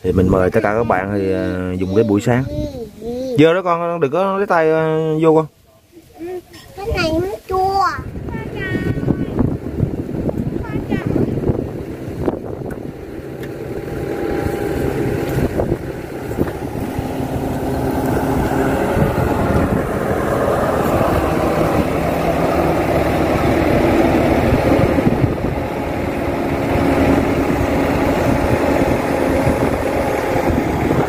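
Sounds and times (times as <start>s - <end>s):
excavator diesel engine running: 8.4s - 31.0s.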